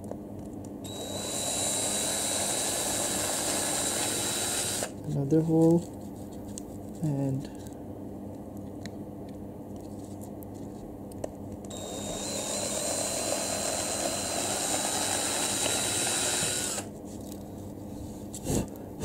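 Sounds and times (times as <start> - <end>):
low steady hum: 0.0 - 19.0
electric drill whining: 0.8 - 5.0, 11.7 - 16.9
drill boring through plastic: 0.9 - 5.0, 11.7 - 16.9.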